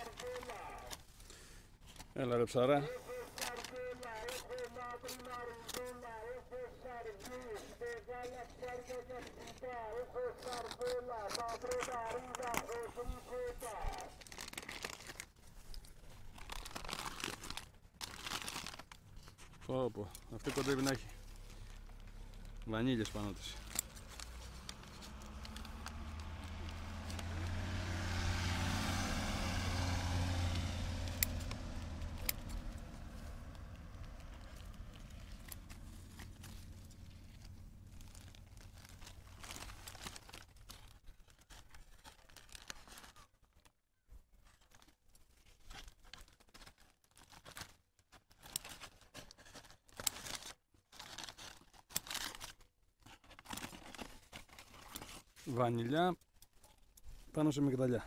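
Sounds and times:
paper bag crackling and tearing: 0.0 - 6.4, 7.2 - 43.7, 44.4 - 55.6
vehicle passing: 23.6 - 39.0.

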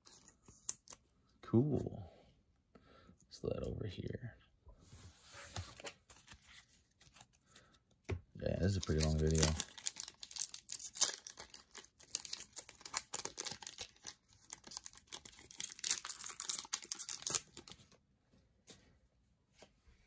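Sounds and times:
foil wrapper tearing and crinkling: 8.6 - 17.8.

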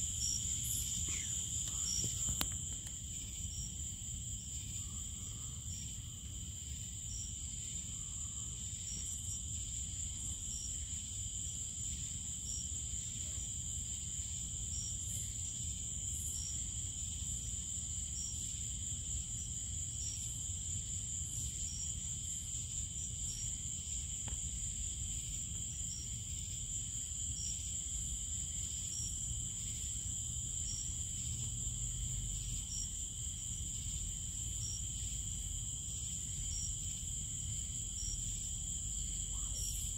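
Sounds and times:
short insect chirps: 0.0 - 3.7
crickets trilling: 0.0 - 39.9.

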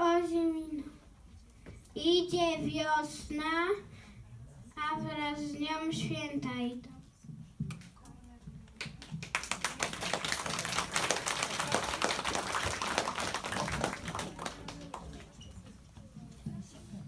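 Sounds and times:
audience applauding: 9.1 - 15.4.

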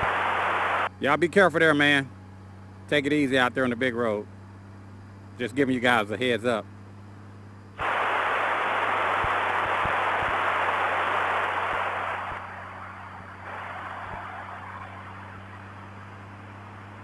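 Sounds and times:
radio static hissing: 0.0 - 0.9, 7.8 - 17.0.

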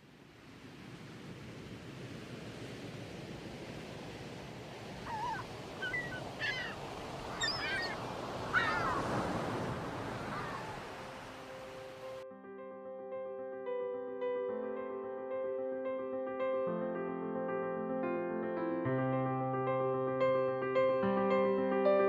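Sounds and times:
surf washing onto beach: 0.0 - 12.2
bird squawks: 5.0 - 9.1, 10.2 - 10.8
electric piano music: 11.3 - 22.0.

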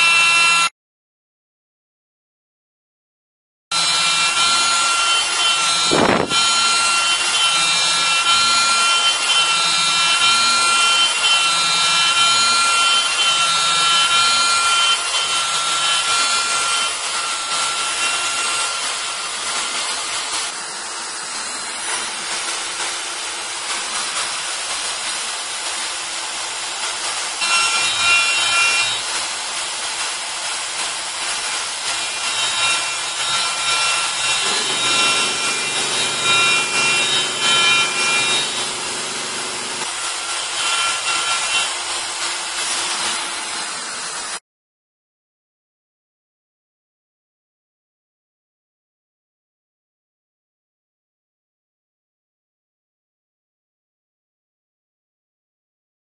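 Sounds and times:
end mill cutting wood: 0.0 - 0.7, 3.7 - 44.4
router whining: 3.7 - 30.0, 30.7 - 44.4.

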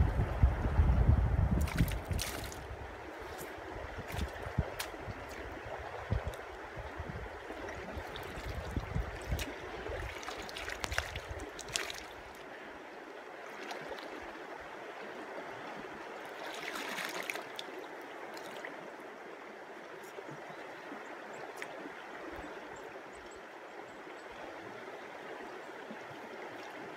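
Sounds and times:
low rumble: 0.0 - 2.0
river water running: 0.0 - 26.9
water splashing and sloshing: 1.5 - 23.3, 24.5 - 26.9.

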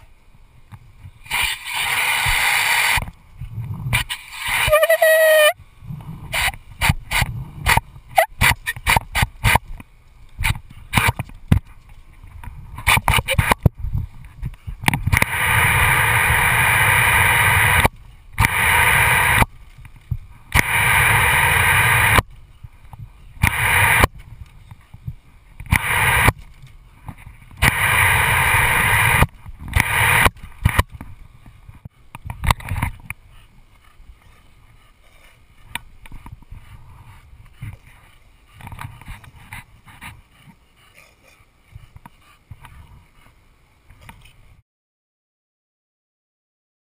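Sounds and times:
garden hose spraying: 1.2 - 3.1, 4.0 - 5.6
small clicks and scuffs: 6.0 - 15.3, 21.6 - 28.0, 29.0 - 44.5.

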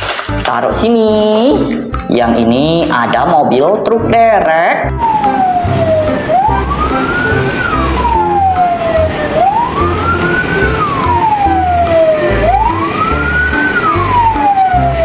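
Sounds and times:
toy electronic siren wailing: 4.9 - 15.0.

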